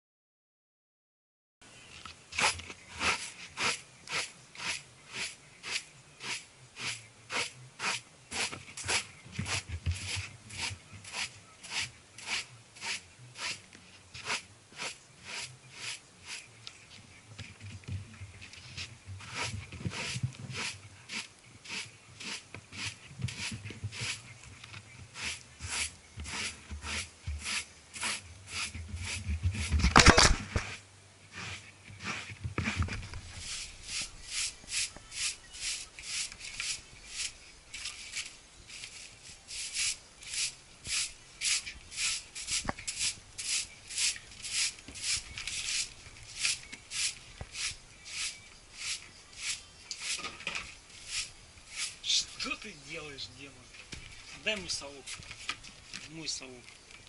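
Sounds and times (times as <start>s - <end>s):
broom sweeping carpet: 18.6s - 24.2s, 30.6s - 50.2s, 51.0s - 52.0s
camera jostled rustle and knock: 29.3s - 30.8s, 53.8s - 57.0s.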